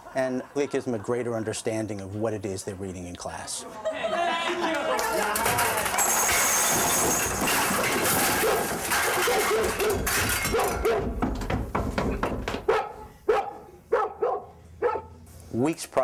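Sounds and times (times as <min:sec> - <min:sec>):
loud laughter: 0:03.6 - 0:06.0
dog barking: 0:08.4 - 0:11.1, 0:12.7 - 0:15.1.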